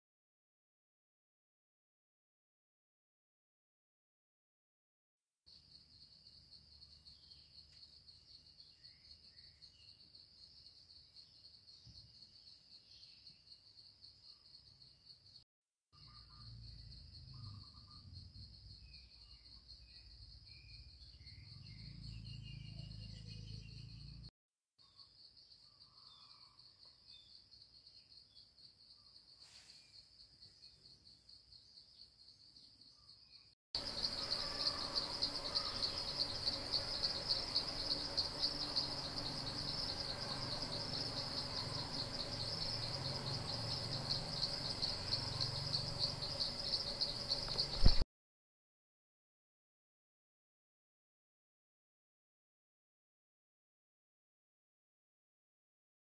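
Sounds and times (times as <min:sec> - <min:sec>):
insects trilling: 0:16.0 - 0:24.2, 0:24.8 - 0:48.0.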